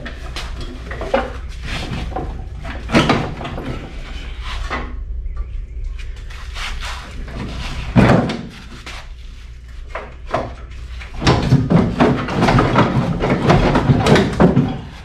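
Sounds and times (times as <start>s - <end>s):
knocks and clunks on metal: 10.0s - 15.0s.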